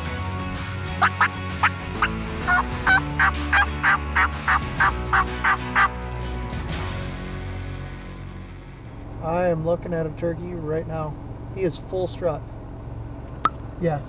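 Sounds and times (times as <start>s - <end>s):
background music: 0.0s - 9.5s
turkey calling: 1.0s - 6.0s.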